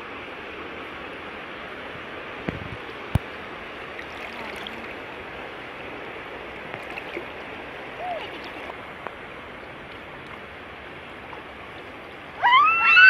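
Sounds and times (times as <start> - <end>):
people wading through shallow water: 3.1 - 12.8.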